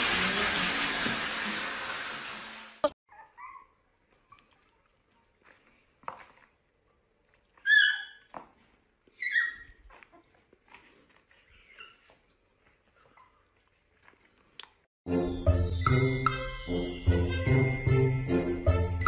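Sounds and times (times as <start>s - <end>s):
puppy whimpering: 3.1s - 4.5s, 9.2s - 10.3s, 11.4s - 12.3s
puppy yelping: 3.1s - 4.5s, 7.6s - 8.3s, 9.1s - 10.3s, 11.4s - 12.2s.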